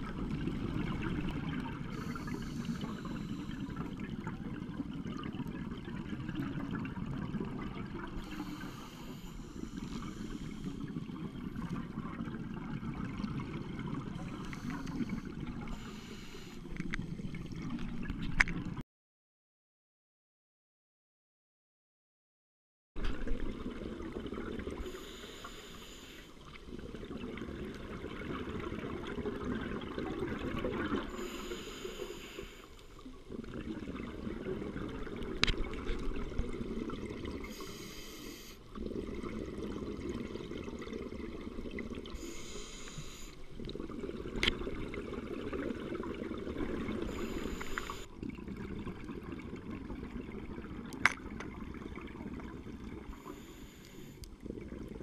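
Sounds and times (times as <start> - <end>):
regulator breathing hiss: 1.9 - 3.8, 8.2 - 10.9, 14.3 - 16.7, 24.8 - 26.4, 31.1 - 32.8, 37.4 - 38.7, 42.2 - 43.5, 47.1 - 48.1, 53.1 - 54.2.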